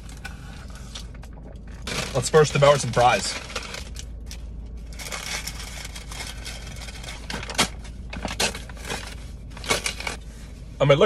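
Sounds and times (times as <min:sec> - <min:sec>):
steady low hum: 0:00.0 - 0:11.0
paper bag rustling: 0:01.8 - 0:04.0, 0:04.9 - 0:10.2
foil wrapper crackling: 0:04.9 - 0:07.8.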